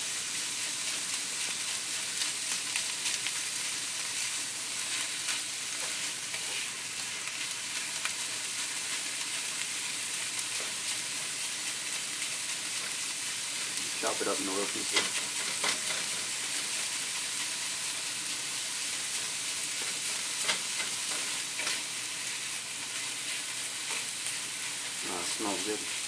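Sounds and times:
meat sizzling in a skillet: 0:00.0 - 0:26.0
spatula scraping and clicking: 0:14.9 - 0:16.2.

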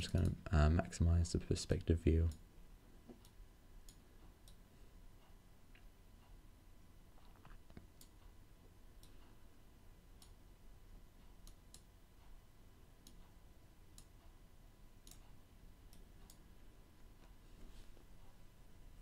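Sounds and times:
low steady hum: 0:00.0 - 0:19.0
computer mouse clicks: 0:11.4 - 0:11.9, 0:15.0 - 0:16.4.

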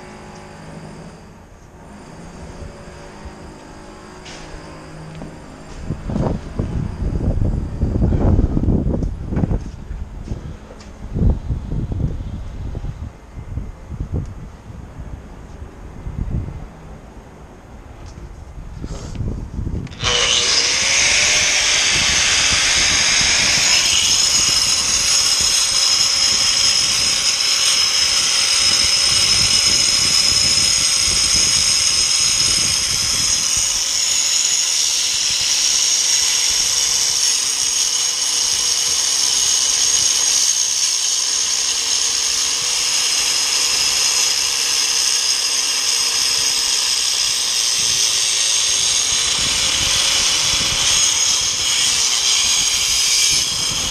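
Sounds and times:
angle grinder whining: 0:00.0 - 0:09.4, 0:19.8 - 0:53.9.

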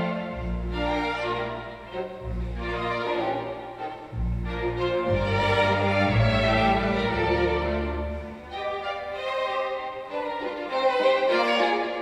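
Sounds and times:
violin music through speakers: 0:00.0 - 0:12.0
deep bass note: 0:04.1 - 0:08.3.

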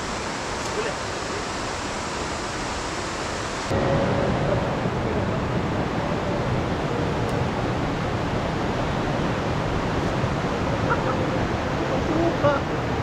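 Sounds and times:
fast-flowing river water: 0:07.4 - 0:13.0.

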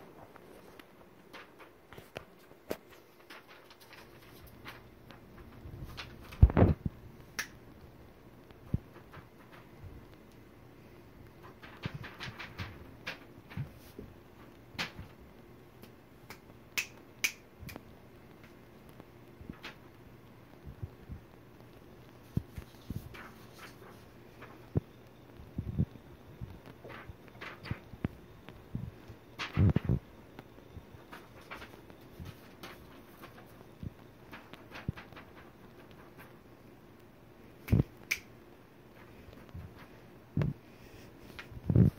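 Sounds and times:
fingers snapping: 0:07.4 - 0:07.6, 0:16.3 - 0:17.8, 0:37.6 - 0:38.3.

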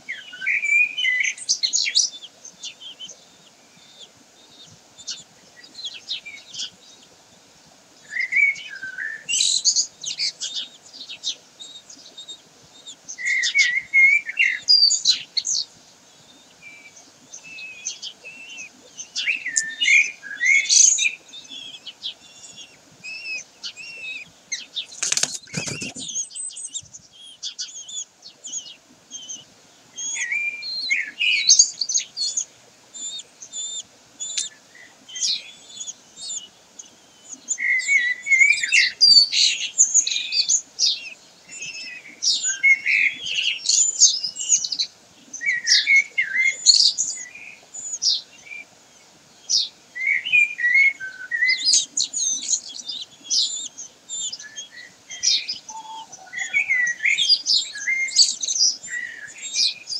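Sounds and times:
kestrels chirping: 0:00.0 - 0:59.9
wingbeats and scraping: 0:24.9 - 0:26.2.

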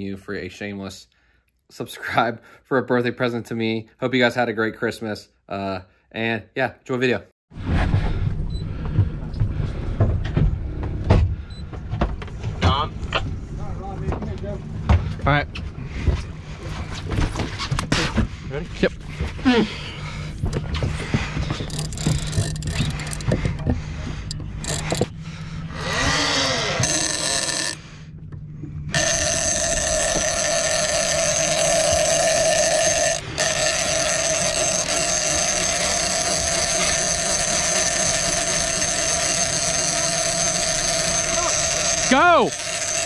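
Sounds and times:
fishing reel clicker ratcheting: 0:21.6 - 0:23.3, 0:24.6 - 0:25.1, 0:25.8 - 0:27.8, 0:28.9 - 0:43.0.

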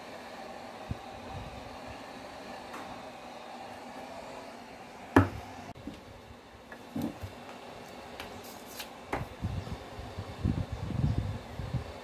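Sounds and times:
heat gun blower running: 0:00.0 - 0:12.0.

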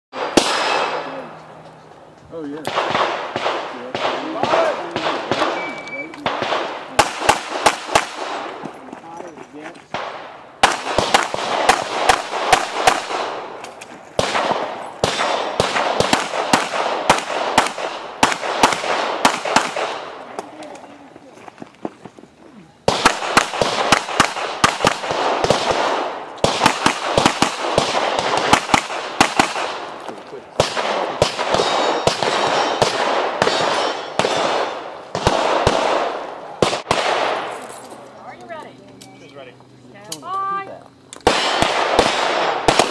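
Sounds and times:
pistol shots with echo: 0:00.2 - 0:01.3, 0:02.6 - 0:08.7, 0:09.9 - 0:13.6, 0:14.2 - 0:20.2, 0:22.8 - 0:30.0, 0:30.6 - 0:37.6, 0:41.2 - 0:42.9.

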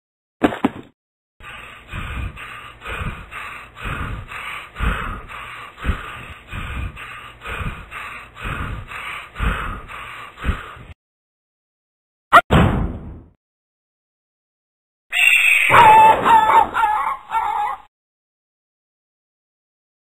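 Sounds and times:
cartoon dog panting: 0:01.4 - 0:11.0.

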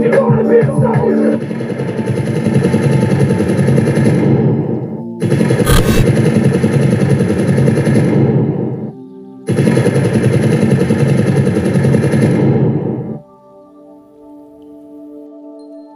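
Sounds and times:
machine-gun fire: 0:05.7 - 0:06.1.

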